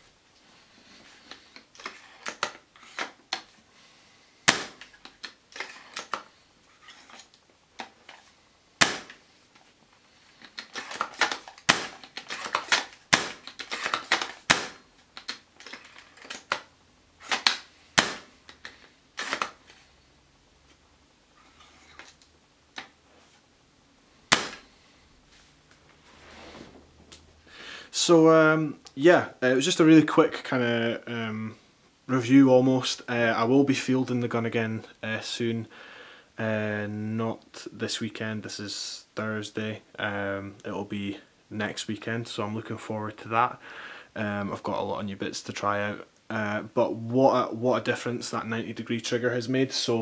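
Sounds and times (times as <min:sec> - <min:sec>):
airsoft rifle shots snapping: 0:04.5 - 0:04.8, 0:10.9 - 0:13.4, 0:14.1 - 0:14.8.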